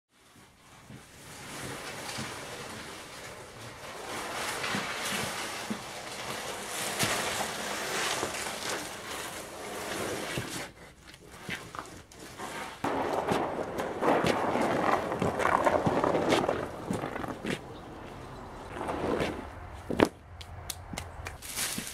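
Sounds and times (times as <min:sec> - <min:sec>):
wrapped engine scraping across floor: 0:00.2 - 0:20.0
cardboard and plastic rustling: 0:00.2 - 0:20.2, 0:21.3 - 0:21.9
footsteps: 0:10.2 - 0:21.9.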